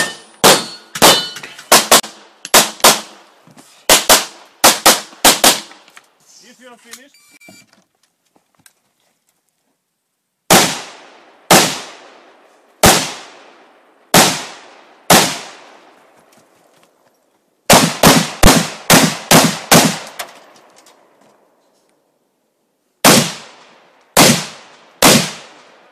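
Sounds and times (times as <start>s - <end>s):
gunshots with echo: 0.0s - 3.2s, 14.1s - 15.7s, 17.7s - 20.1s, 23.0s - 25.8s.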